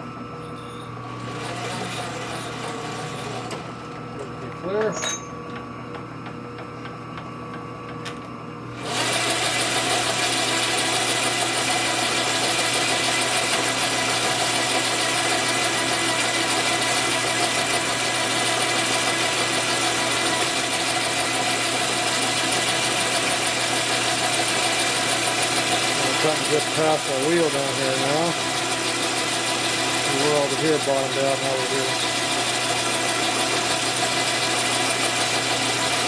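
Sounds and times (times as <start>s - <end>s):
metal lathe running with whine: 0.0s - 5.5s, 8.8s - 36.0s.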